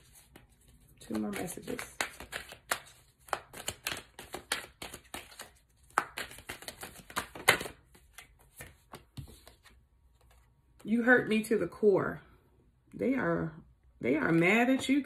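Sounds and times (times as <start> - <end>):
cards being shuffled: 0.0 - 10.5.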